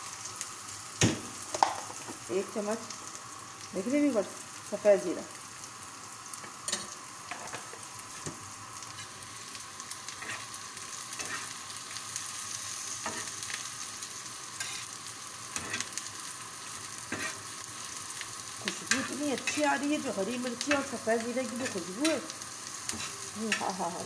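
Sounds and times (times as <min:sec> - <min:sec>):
food sizzling in a pan: 0:00.0 - 0:24.0
metal spatula scraping pan: 0:10.2 - 0:10.5, 0:11.2 - 0:11.5, 0:14.6 - 0:14.9, 0:17.1 - 0:17.4.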